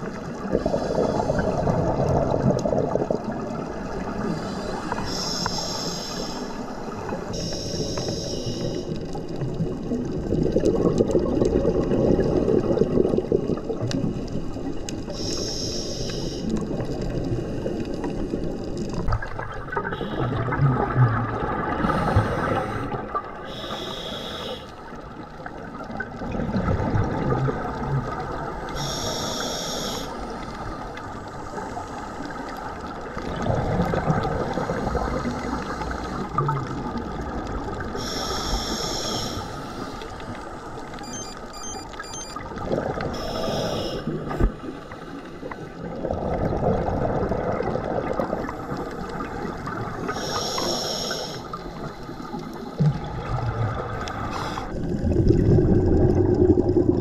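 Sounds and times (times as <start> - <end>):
exhaled bubbles rumbling: 0.0 - 5.4, 9.0 - 15.3, 16.4 - 23.6, 24.8 - 28.9, 30.3 - 38.1, 40.2 - 43.4, 44.1 - 50.2, 51.4 - 57.0
regulator hissing inhales: 4.4 - 6.6, 7.4 - 8.9, 15.2 - 16.5, 23.5 - 24.8, 28.8 - 30.2, 38.0 - 40.1, 43.2 - 44.1, 50.1 - 51.6, 54.3 - 54.7.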